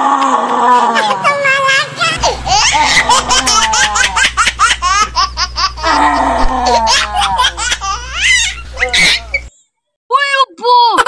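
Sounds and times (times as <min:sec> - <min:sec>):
rapid high-pitched laughter: 0:00.6 - 0:09.5.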